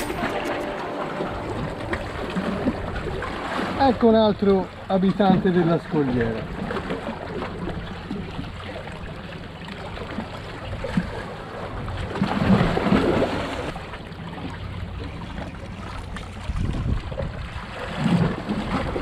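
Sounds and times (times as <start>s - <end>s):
sea waves washing against rocks: 0.0s - 8.1s, 10.9s - 13.8s.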